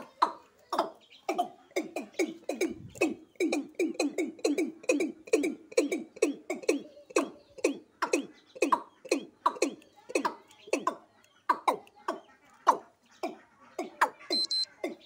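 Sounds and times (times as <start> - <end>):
bird calling repeated short notes: 14.2 - 14.7.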